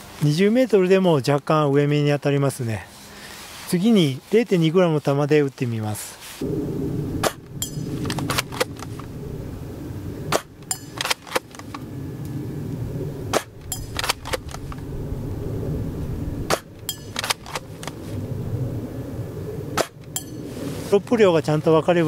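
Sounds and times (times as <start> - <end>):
wind rumble on microphone: 6.4 - 22.0
airsoft rifle clicks and snaps: 8.0 - 9.1, 10.4 - 11.8, 13.4 - 14.8, 16.5 - 18.0.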